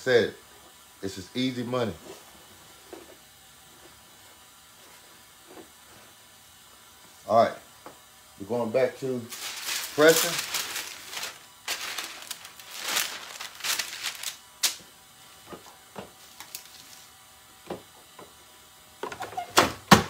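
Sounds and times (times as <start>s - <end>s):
plastic film sheets rustling: 9.2s - 14.9s, 15.5s - 17.1s.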